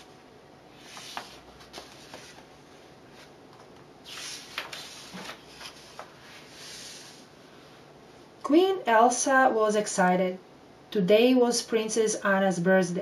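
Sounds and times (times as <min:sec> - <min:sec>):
paper rustling: 0:00.7 - 0:07.2
page flipping over: 0:00.8 - 0:02.5, 0:03.1 - 0:07.1.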